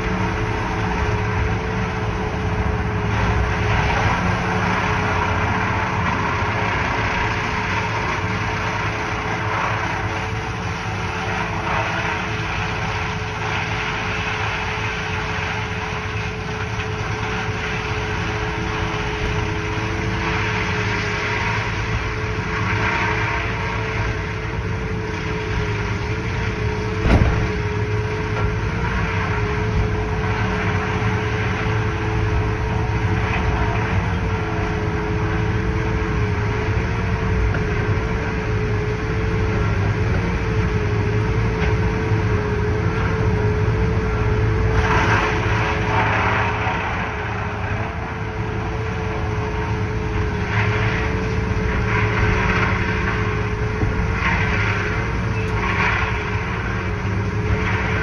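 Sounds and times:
heavy machinery drone: 0.0 - 58.0
wavering machine whine: 0.0 - 58.0
wood chipper crunching material: 0.0 - 58.0
sharp knock: 27.0 - 27.5.

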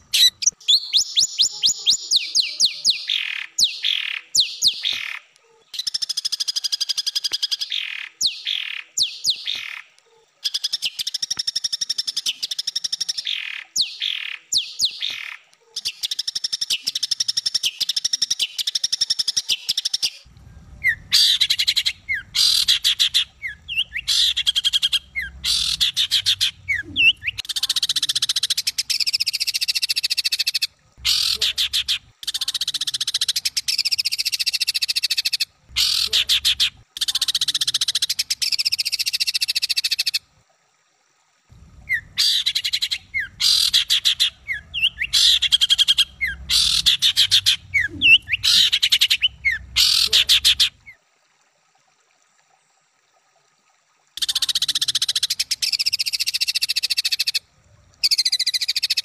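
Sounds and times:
songbird rattling buzzing song: 10.5 - 40.2, 41.8 - 51.0.

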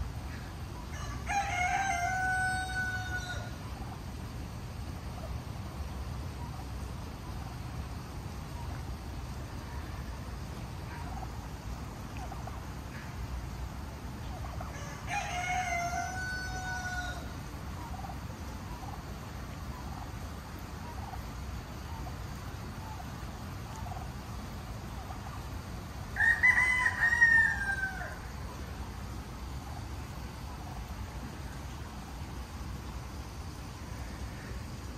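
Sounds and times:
fowl calling: 0.0 - 4.0, 9.5 - 31.9.

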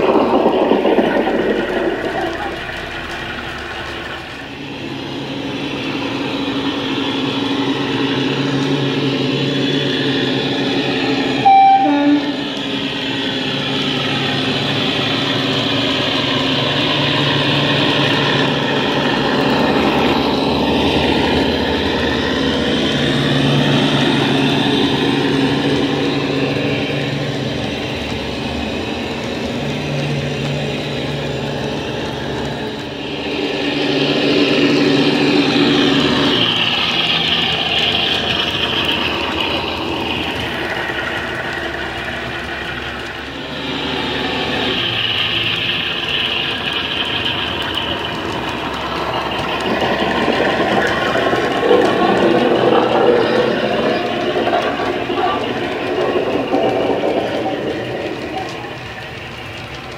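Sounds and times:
diesel locomotive engine running: 0.0 - 59.9
two-tone horn: 11.4 - 12.6.

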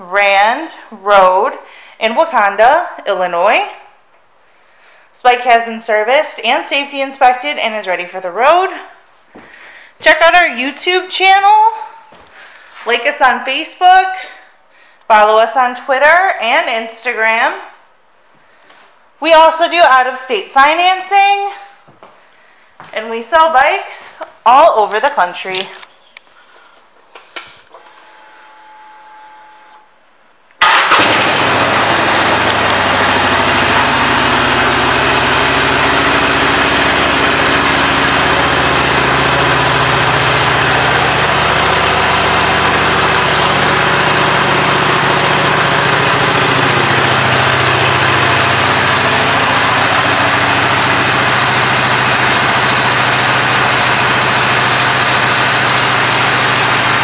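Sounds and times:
motorcycle engine starting and idling: 30.6 - 57.0.

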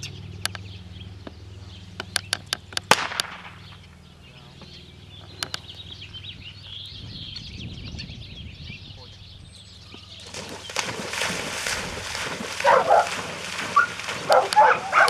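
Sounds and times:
small birds chirping: 0.0 - 15.0
steady low hum: 0.0 - 15.0
sharp pops and clicks: 2.0 - 3.5.

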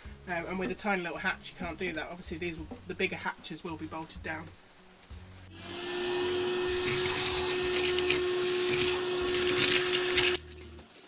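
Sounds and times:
vacuum cleaner running: 5.5 - 10.4.

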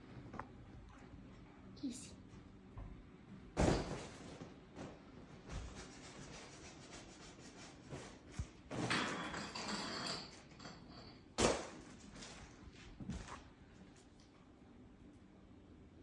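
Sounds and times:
rustling and shuffling: 3.8 - 8.9, 11.8 - 14.3.

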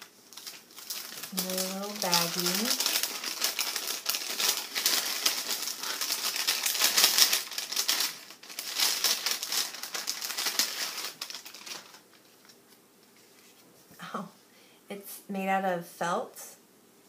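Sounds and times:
plastic bag crinkling: 0.0 - 13.6.

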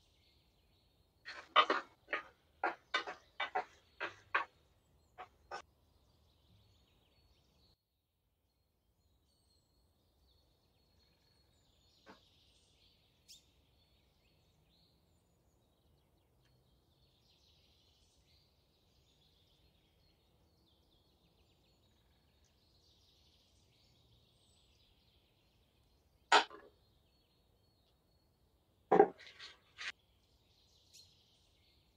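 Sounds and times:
cookware and utensils knocking: 1.3 - 4.5.

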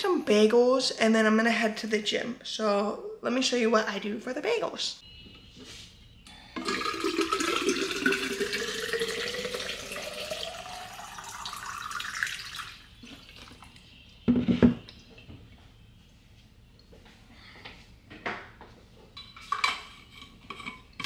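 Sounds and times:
water running from tap into container: 6.6 - 13.7.

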